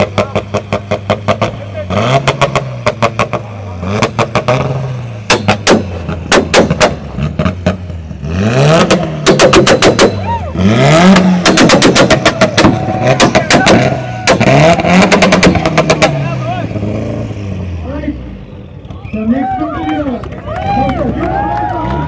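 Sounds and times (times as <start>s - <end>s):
car engine revving: 0.0s - 18.9s
exhaust pops and bangs: 2.2s - 8.1s, 8.8s - 10.3s, 11.0s - 16.3s.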